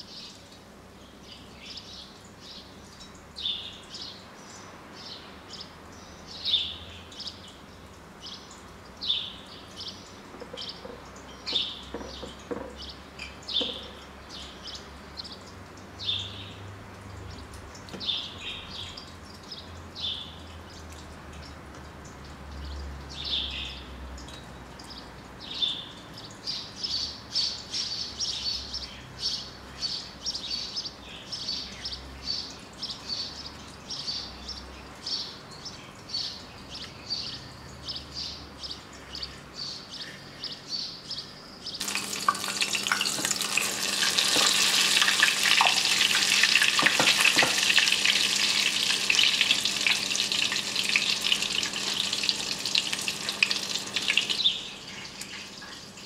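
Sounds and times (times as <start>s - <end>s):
chicken frying in hot oil: 41.8s - 56.0s.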